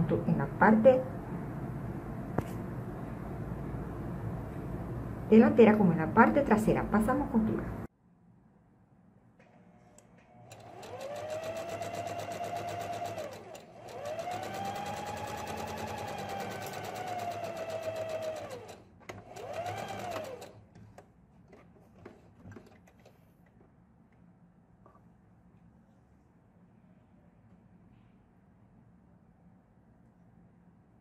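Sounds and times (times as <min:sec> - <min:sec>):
electric sewing machine stitching: 0:10.4 - 0:20.6.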